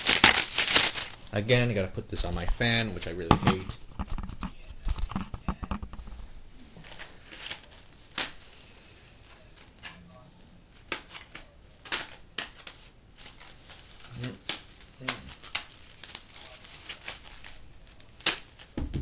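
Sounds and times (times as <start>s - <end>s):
plastic packaging crinkling: 0.0s - 10.1s, 10.7s - 19.0s
camera being handled: 3.4s - 6.2s.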